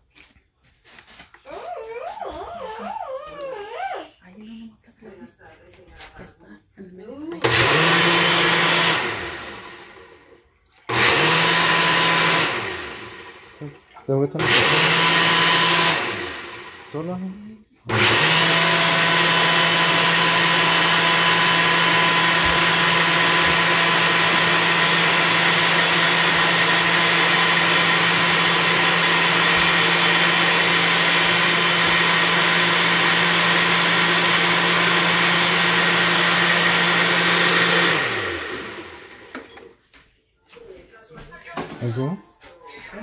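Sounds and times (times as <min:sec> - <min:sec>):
blender motor running: 0:07.4 - 0:10.3, 0:10.9 - 0:17.3, 0:17.9 - 0:39.4.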